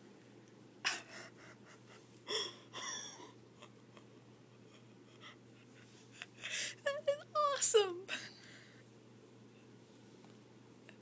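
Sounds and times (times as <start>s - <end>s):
person gasping: 2.3s - 3.3s.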